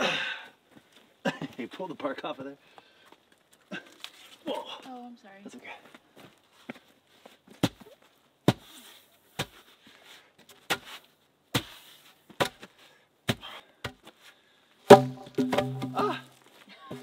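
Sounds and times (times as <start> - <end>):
log post thudding into ground: 14.9 - 16.4.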